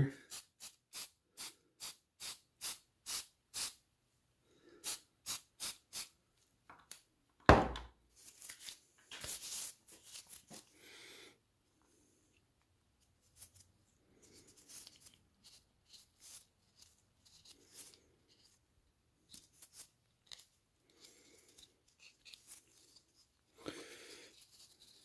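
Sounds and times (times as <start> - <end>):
knock: 7.5 - 7.9
gloved hands handling plastic: 8.1 - 10.8, 12.4 - 25.0.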